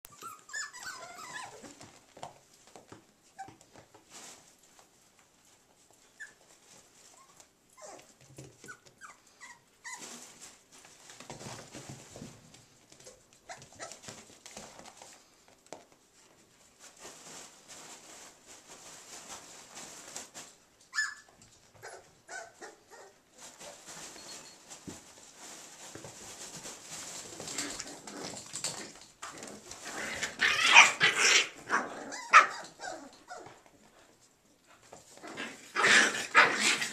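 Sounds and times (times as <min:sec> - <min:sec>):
puppies scuffling: 0:00.0 - 0:36.9
puppy whimpers and yips: 0:00.1 - 0:01.8, 0:06.1 - 0:06.5, 0:07.1 - 0:10.1, 0:13.5 - 0:14.0, 0:20.9 - 0:23.2, 0:32.0 - 0:33.5.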